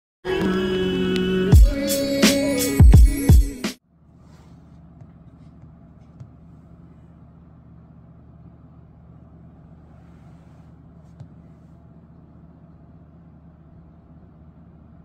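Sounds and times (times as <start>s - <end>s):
low room hum: 3.8s - 15.0s.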